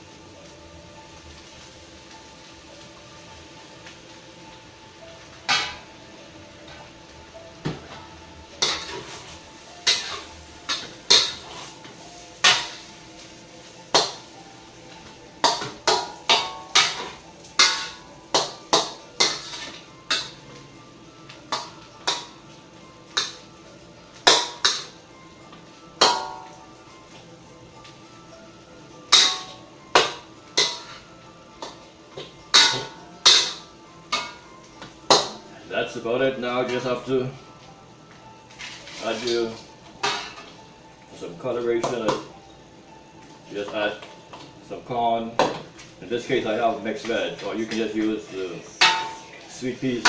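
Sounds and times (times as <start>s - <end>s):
metal spatula clanging on wok: 5.5s - 5.9s, 8.6s - 9.1s, 9.8s - 11.5s, 12.4s - 12.8s, 15.4s - 20.4s, 24.3s - 25.0s, 26.0s - 26.5s, 29.1s - 31.0s, 32.5s - 34.5s, 40.0s - 40.5s, 48.8s - 49.3s.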